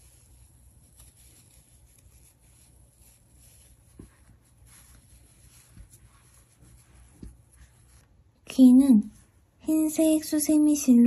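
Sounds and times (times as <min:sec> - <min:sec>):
yarn rustling and scratching: 0:00.0 - 0:08.2
soft taps: 0:07.1 - 0:07.7.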